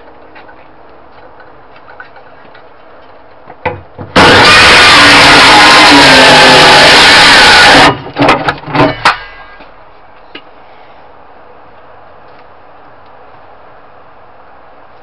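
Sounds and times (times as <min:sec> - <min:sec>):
circular saw cutting wood: 0:04.2 - 0:08.0.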